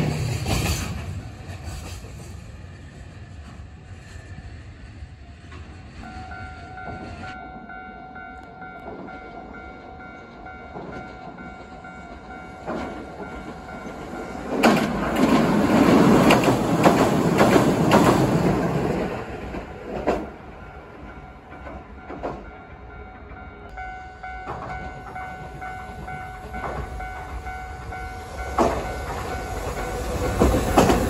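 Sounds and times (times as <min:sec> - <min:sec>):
train passing: 0:00.0 - 0:31.0
level-crossing alarm ringing: 0:06.0 - 0:14.8, 0:20.6 - 0:30.9
wheels clattering over rail joints: 0:10.7 - 0:20.4.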